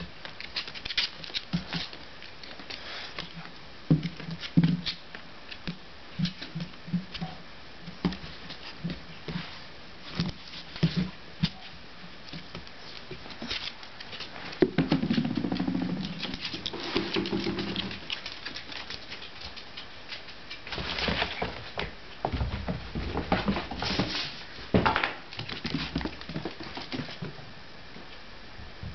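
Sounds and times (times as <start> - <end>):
dog claws clicking on wooden floor: 12.3 - 21.8.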